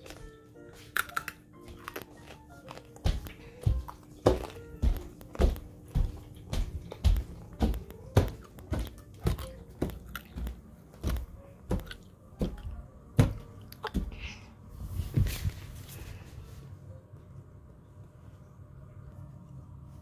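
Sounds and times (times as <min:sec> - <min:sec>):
footsteps on a wooden floor: 0:01.6 - 0:15.9.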